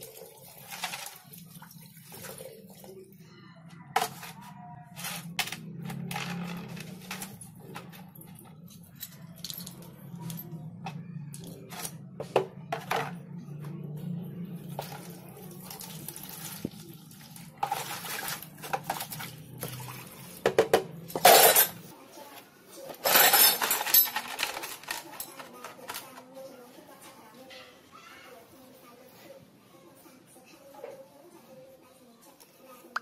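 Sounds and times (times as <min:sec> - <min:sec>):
tray and metal clattering: 0:22.9 - 0:26.2.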